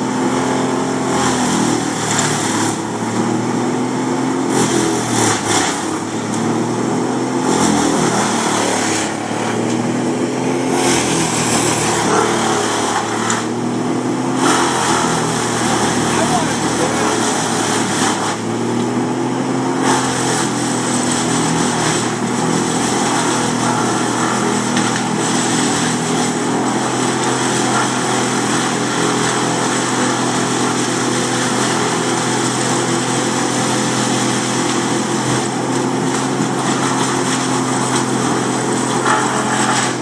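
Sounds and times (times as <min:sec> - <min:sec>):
large engine running: 0:00.0 - 0:40.0.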